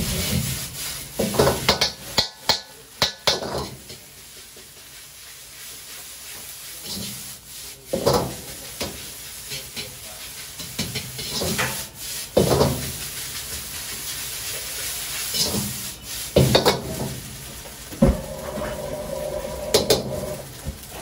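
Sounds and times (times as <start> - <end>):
rice sizzling in a wok: 0.0 - 21.0
ladle scraping a wok: 3.4 - 21.0
ladle clanking against wok: 10.6 - 13.0.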